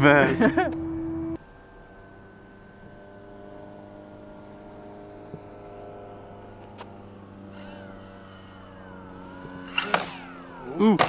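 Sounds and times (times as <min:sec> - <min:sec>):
electric motor and propeller whine: 0:00.0 - 0:11.0
higher wavering tone: 0:07.4 - 0:11.0.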